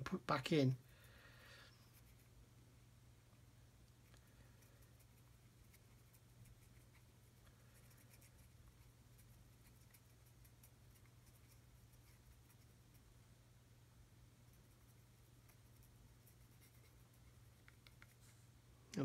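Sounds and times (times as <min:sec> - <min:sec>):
paintbrush dabbing on plastic: 0:03.9 - 0:13.2, 0:14.2 - 0:18.6.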